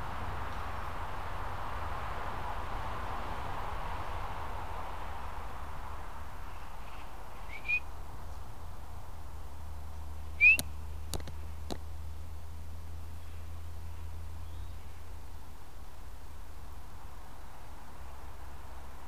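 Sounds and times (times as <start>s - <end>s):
upward-swooping whistles: 7.5s - 7.9s, 10.4s - 10.7s.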